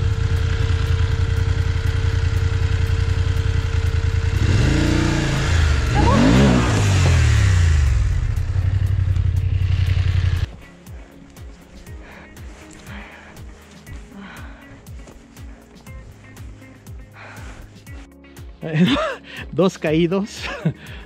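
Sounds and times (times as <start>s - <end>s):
motorcycle engine idling and revving: 0.0s - 11.2s.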